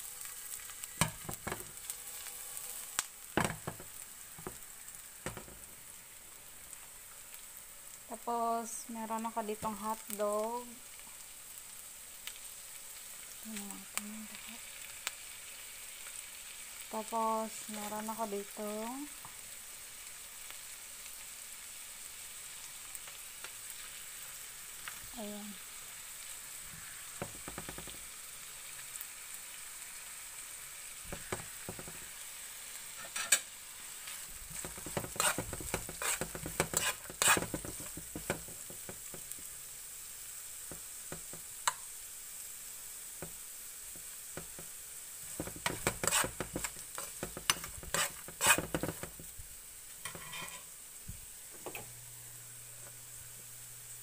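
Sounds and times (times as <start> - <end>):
vegetables sizzling in a frying pan: 0.0 - 54.0
metal spoon scraping a pan: 32.9 - 33.5, 34.1 - 38.5, 45.3 - 49.2, 50.0 - 50.7.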